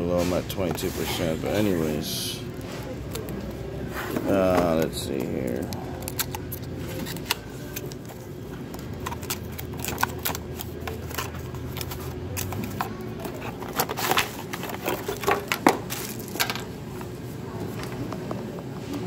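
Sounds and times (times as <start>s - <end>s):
plastic crinkling: 4.3s - 17.1s.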